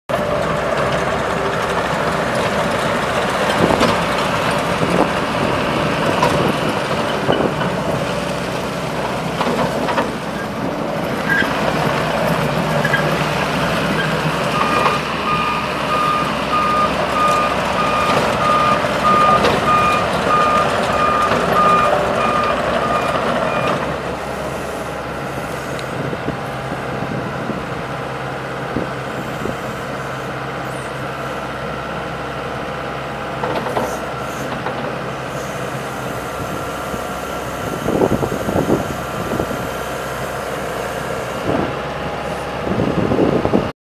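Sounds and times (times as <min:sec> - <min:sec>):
diesel engine running: 0:00.1 - 0:43.7
reversing alarm beeping: 0:14.0 - 0:23.9, 0:35.3 - 0:41.4.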